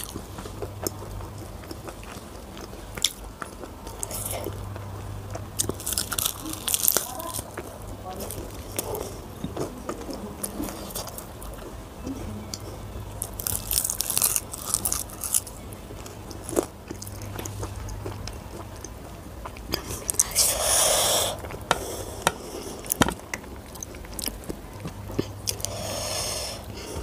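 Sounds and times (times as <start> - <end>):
biting and chewing food: 0.0 - 27.0.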